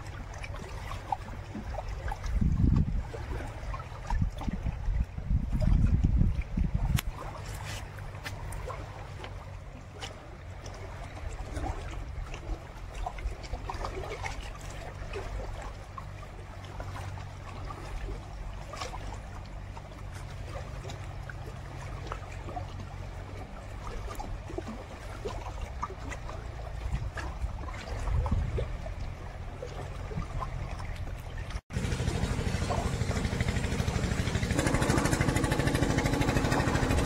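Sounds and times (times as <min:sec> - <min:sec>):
small ticks and splashes: 0:00.0 - 0:33.7
river water lapping on rocks: 0:00.0 - 0:37.0
steady low rumble: 0:26.6 - 0:37.0.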